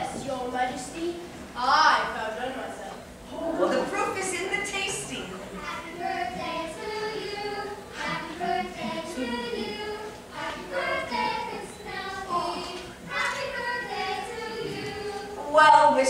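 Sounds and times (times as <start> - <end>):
performers singing: 5.9 - 15.4.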